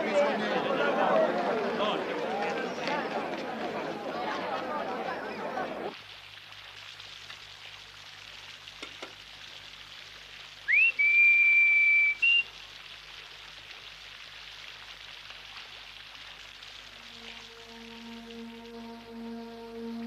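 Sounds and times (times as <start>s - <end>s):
rain hissing: 0.0s - 20.0s
whistle gliding up: 10.7s - 12.5s.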